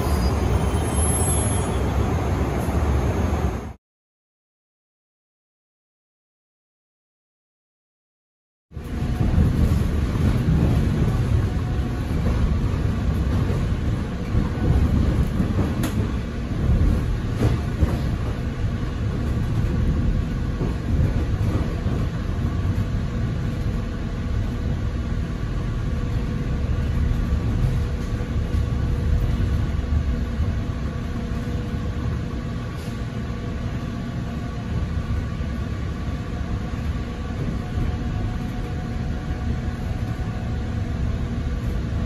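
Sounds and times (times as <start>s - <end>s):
train interior low rumble: 8.7s - 42.0s.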